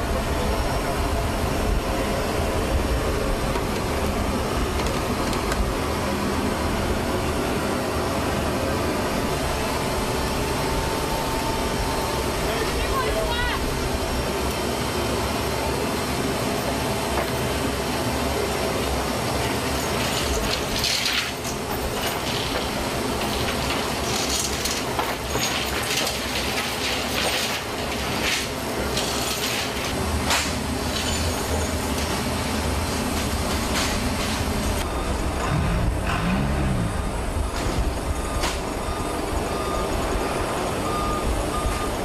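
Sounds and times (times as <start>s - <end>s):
loud machinery rumble: 0.0s - 42.0s.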